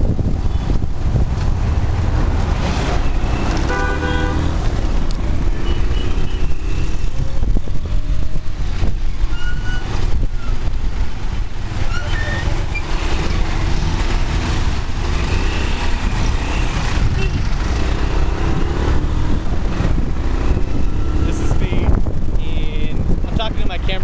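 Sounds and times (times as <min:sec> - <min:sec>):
road noise: 0:00.0 - 0:24.0
vehicle horns tooting: 0:03.1 - 0:04.6, 0:05.6 - 0:07.1, 0:16.4 - 0:17.6.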